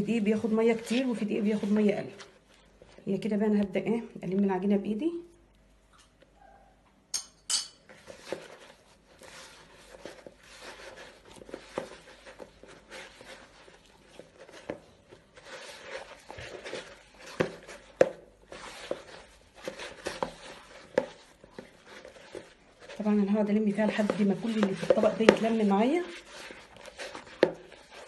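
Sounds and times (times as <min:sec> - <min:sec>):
hand kneading dough in bowl: 0:00.0 - 0:05.1, 0:07.8 - 0:28.0
dough knocking against plastic bowl: 0:24.0 - 0:25.7.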